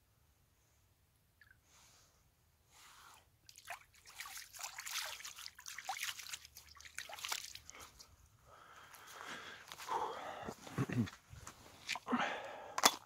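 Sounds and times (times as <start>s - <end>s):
water splashing by hand: 3.5s - 8.1s.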